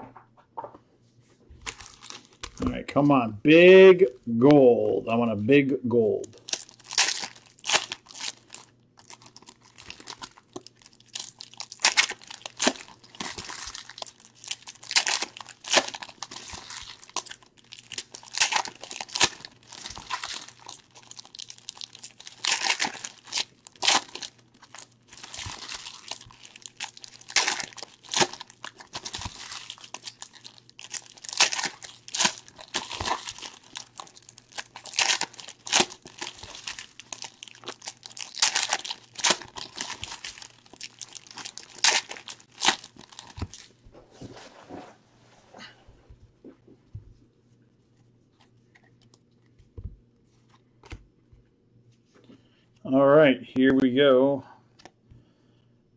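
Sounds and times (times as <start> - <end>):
foil wrappers crinkling and tearing: 1.6 - 2.7, 6.3 - 43.8.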